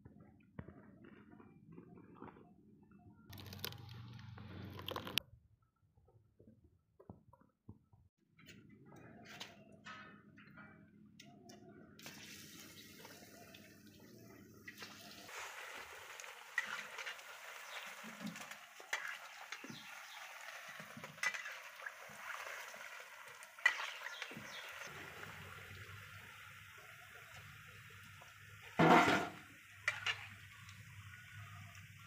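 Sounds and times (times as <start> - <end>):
deep-frying in hot oil: 3.3 - 5.2, 12.0 - 32.0
oil sizzling with sharp pops: 12.0 - 32.0.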